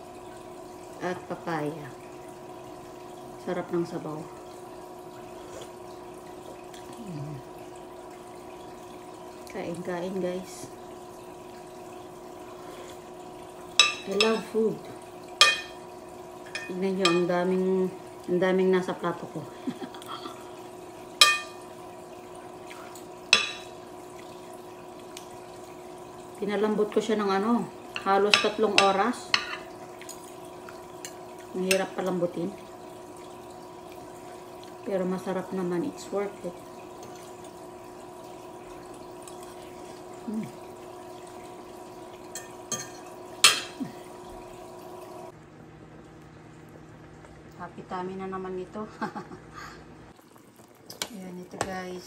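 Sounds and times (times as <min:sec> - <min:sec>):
faint steady hum: 0:00.0 - 0:52.0
person humming: 0:06.9 - 0:07.5, 0:40.2 - 0:40.6
chewing: 0:50.2 - 0:51.2.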